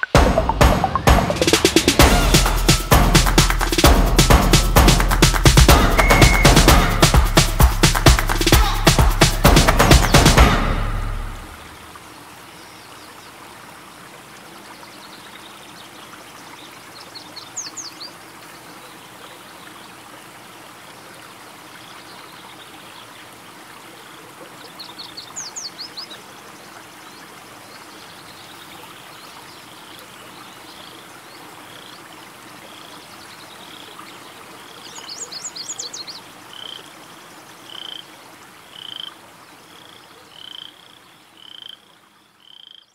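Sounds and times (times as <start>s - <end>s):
fast high chirps: 0.0s - 10.4s
single high peep: 6.0s - 6.7s
chorus of frogs calling: 34.6s - 42.9s.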